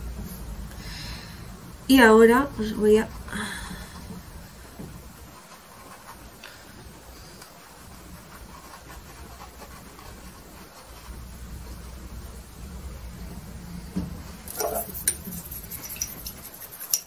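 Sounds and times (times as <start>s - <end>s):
low steady hum: 0.0s - 17.0s
paintbrush scrubbing on canvas: 5.0s - 12.3s, 14.4s - 17.0s.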